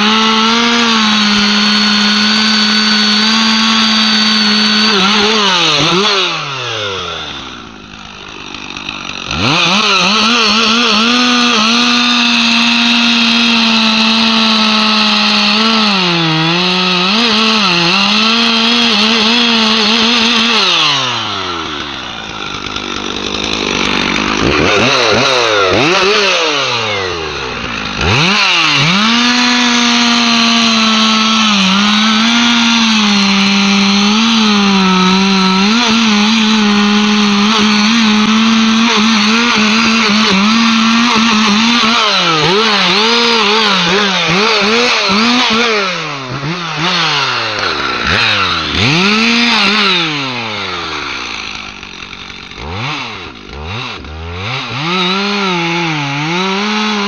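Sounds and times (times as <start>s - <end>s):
chainsaw cutting through tree trunk: 0.0s - 57.0s.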